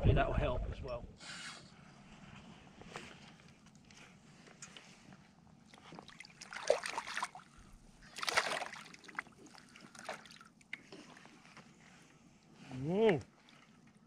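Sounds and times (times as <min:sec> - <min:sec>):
fish splashing at surface: 0:06.0 - 0:07.5, 0:08.1 - 0:10.4.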